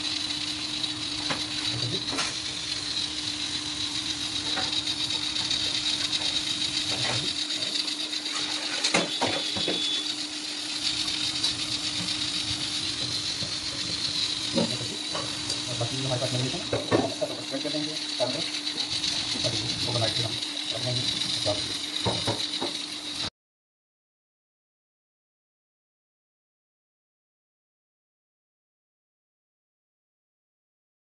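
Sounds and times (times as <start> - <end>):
machine hum with high whine: 0.0 - 23.3.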